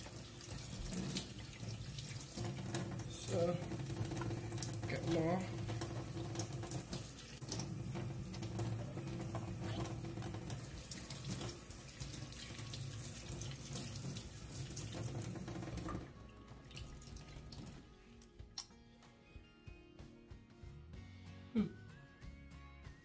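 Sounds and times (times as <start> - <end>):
tap running into a sink: 0.0 - 17.8.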